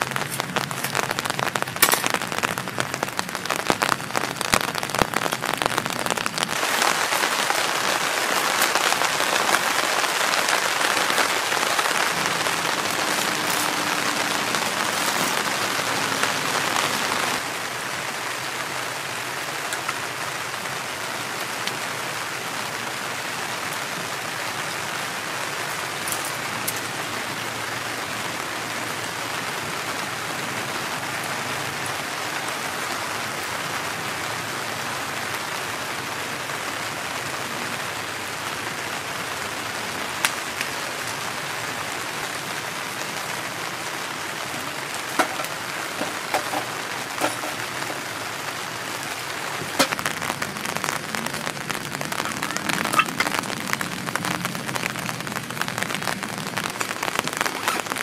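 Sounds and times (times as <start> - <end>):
fire crackling and popping: 0.0 - 58.0
heavy rain on a tarp: 0.0 - 58.0.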